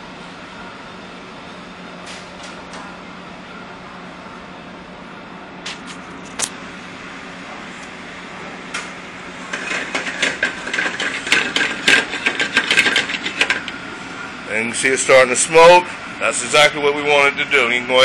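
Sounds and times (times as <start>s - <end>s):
ventilation hum: 0.0s - 18.0s.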